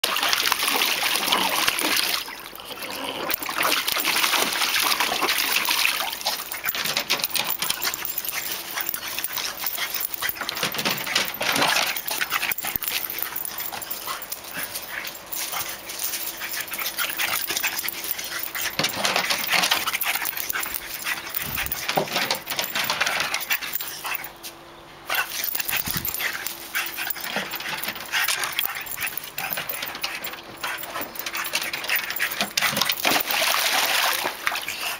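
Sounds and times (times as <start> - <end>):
dog splashing in paddling pool: 0.0 - 2.4, 3.3 - 7.3, 32.8 - 34.9.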